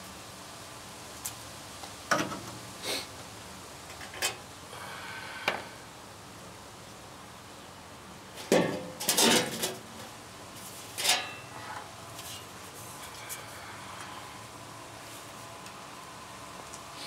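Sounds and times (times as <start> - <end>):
metal panel scraping and clanking: 8.5 - 9.8.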